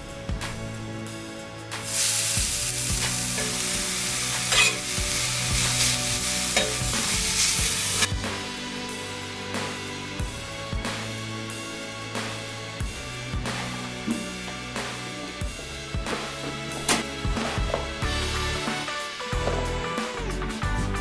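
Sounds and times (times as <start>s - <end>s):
background music: 0.0s - 21.0s
food sizzling in frying pan: 1.8s - 8.1s.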